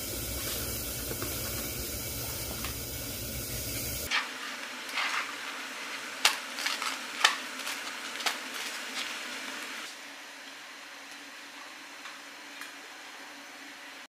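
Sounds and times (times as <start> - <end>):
toast crust crackling: 6.0 - 9.8
sharp cracks of bread: 6.2 - 8.9.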